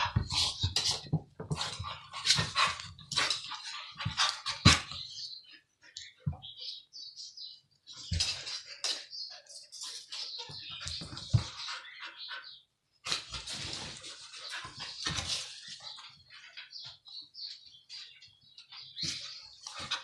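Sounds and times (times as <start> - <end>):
dogs scuffling and mouthing: 0.0 - 5.1, 7.9 - 12.0, 13.1 - 20.0.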